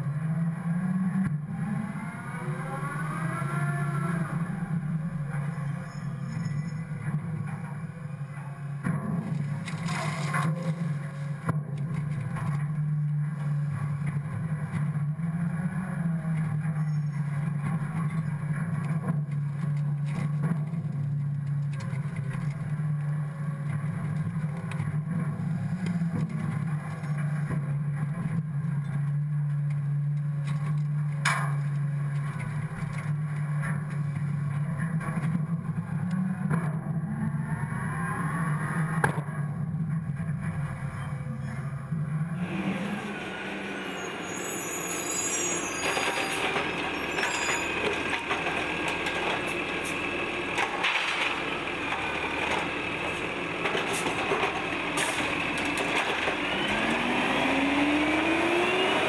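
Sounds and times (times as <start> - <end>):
refuse truck engine and hydraulics hum: 38.4 - 59.0
automated arm emptying cart: 42.4 - 59.0.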